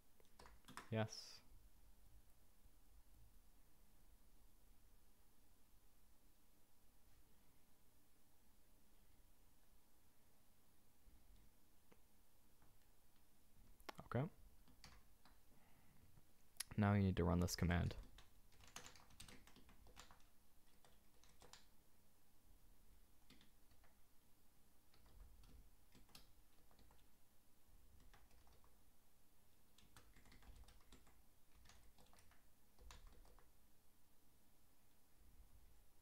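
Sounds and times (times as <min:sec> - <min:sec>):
keyboard typing: 0:00.2 - 0:01.0, 0:14.6 - 0:15.4, 0:17.7 - 0:21.8, 0:23.2 - 0:24.0, 0:24.8 - 0:27.2, 0:27.9 - 0:28.8, 0:29.7 - 0:33.6.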